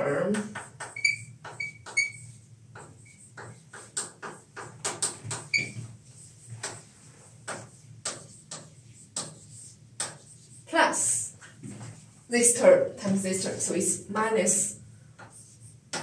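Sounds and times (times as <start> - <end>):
chalk scratching on chalkboard: 0.4 - 11.2, 15.2 - 16.0
high chalk squeaks: 0.6 - 2.4.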